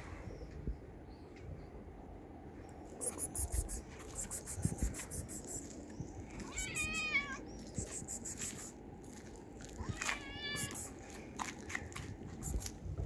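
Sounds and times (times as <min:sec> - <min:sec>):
cat meowing: 0:06.4 - 0:07.4, 0:09.8 - 0:10.8.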